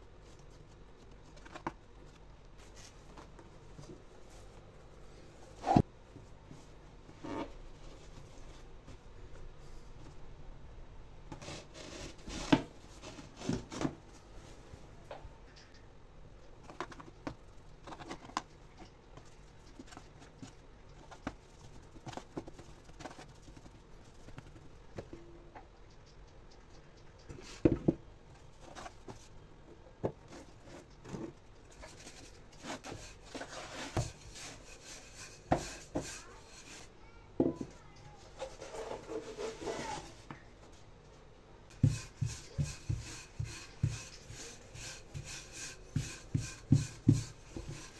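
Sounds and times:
hands kneading dough: 16.4 - 37.0, 41.7 - 47.9.

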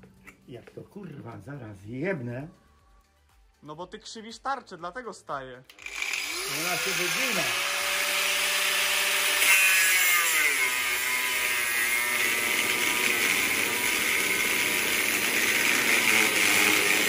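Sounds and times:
angle grinder cutting metal: 5.7 - 17.0.

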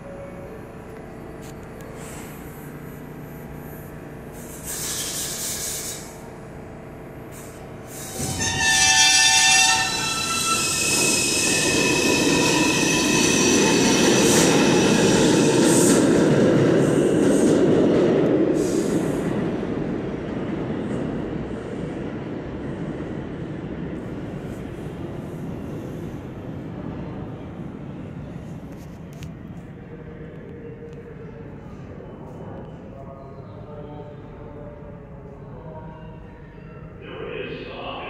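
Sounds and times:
train air hiss: 1.9 - 2.4, 4.3 - 6.3, 7.3 - 8.4, 18.5 - 19.4
steel wheels rumbling on rail: 7.3 - 32.9
high squealing of wheels: 7.9 - 16.0
train horn blast: 8.2 - 11.0.

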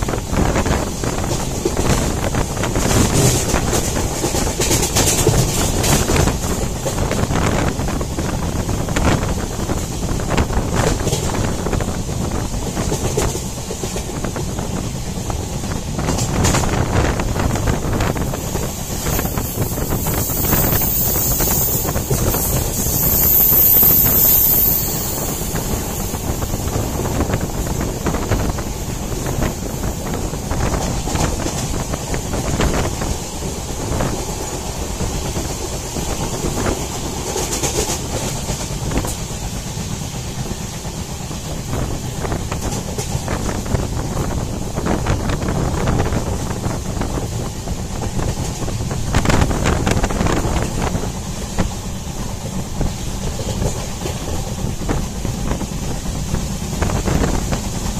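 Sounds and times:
train wheels rumbling: 0.0 - 57.9
wind buffeting microphone: 0.0 - 57.9.

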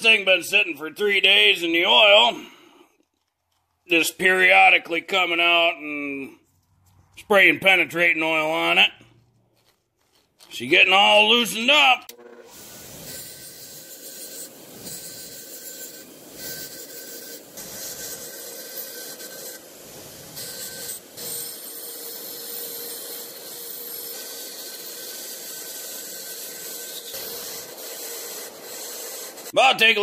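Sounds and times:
bench grinder scraping metal: 12.1 - 29.6.

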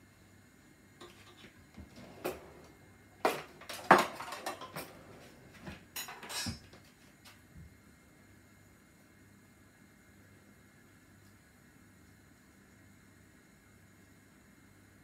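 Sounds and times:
crockery and cutlery clinking: 3.2 - 6.8.

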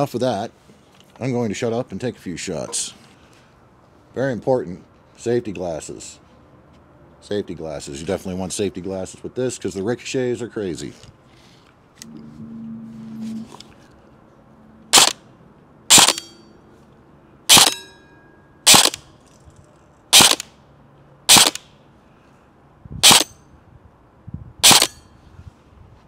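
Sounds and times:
air rifle shots: 14.9 - 15.2, 15.9 - 16.3, 17.5 - 17.8, 18.7 - 19.0, 20.1 - 20.5, 21.3 - 21.7, 23.0 - 23.3, 24.6 - 25.0
brief metallic ring: 16.1 - 16.7, 17.7 - 18.7, 24.8 - 25.2.

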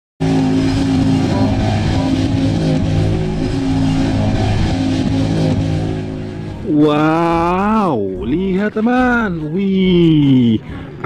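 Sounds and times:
truck engine running: 0.2 - 11.0.

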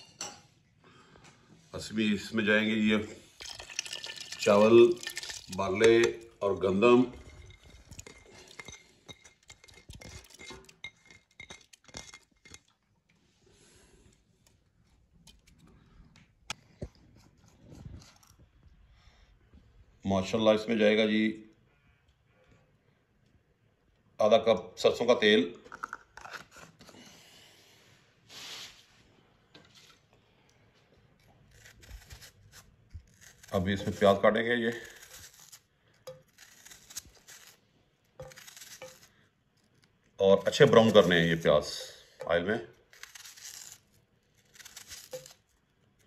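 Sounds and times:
dishes and utensils clinking: 0.0 - 0.5, 7.0 - 12.7.

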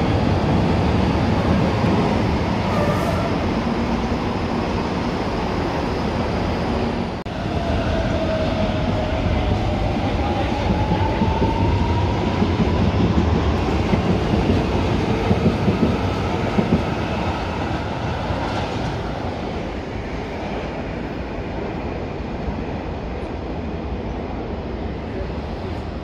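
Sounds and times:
train rumble: 0.0 - 26.0.

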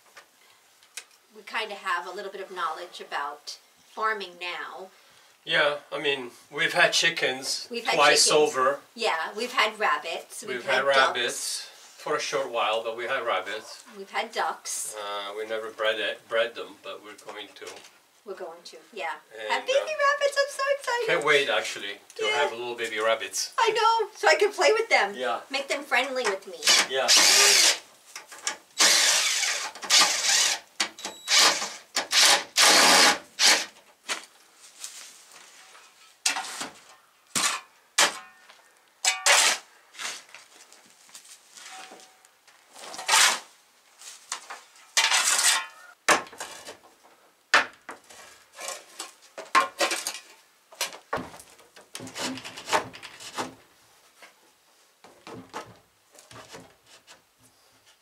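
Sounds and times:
tool scraping across dirt floor: 31.6 - 38.4, 39.0 - 46.8
knocks: 55.0 - 56.8.

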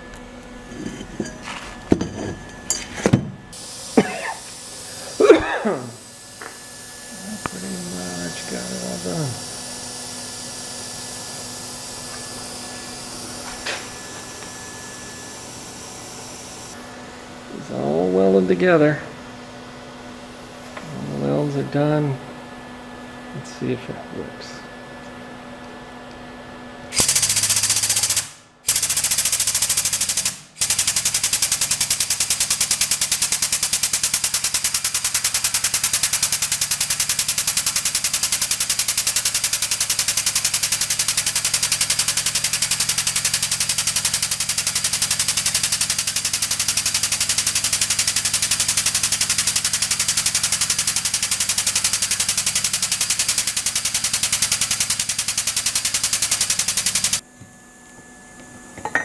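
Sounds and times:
air pump chattering: 2.7 - 16.8, 26.9 - 57.2.

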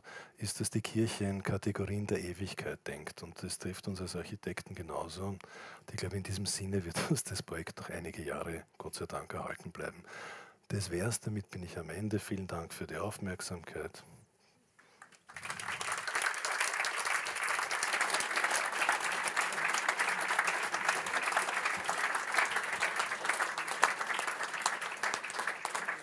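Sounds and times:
audience applause: 15.0 - 26.0.

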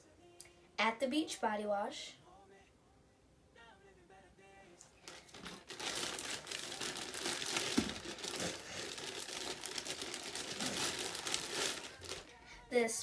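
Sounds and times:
shopping bag rustling: 5.0 - 12.3.

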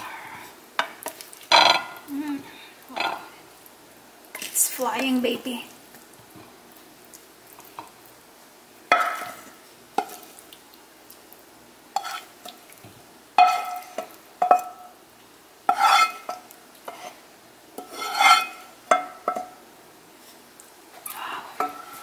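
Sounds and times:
wooden spoon scraping frying pan: 8.9 - 10.3, 11.9 - 12.6, 13.4 - 14.8, 15.7 - 19.6, 21.6 - 22.0.

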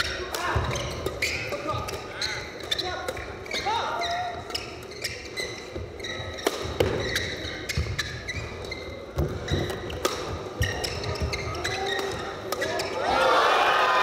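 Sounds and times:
shoes squeaking: 0.0 - 13.1
racket hitting shuttlecock: 6.3 - 13.0.

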